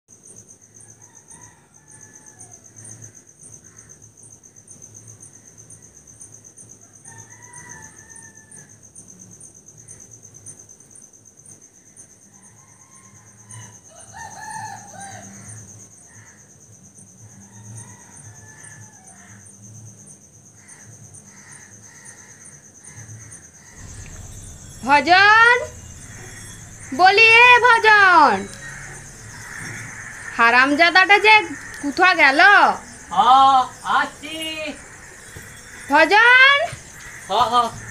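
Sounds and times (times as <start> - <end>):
insects chirping trill: 0.1 - 37.9
rooster crowing: 0.8 - 2.8, 6.8 - 8.8, 12.4 - 15.6, 23.6 - 37.9
bird calls: 23.7 - 37.9.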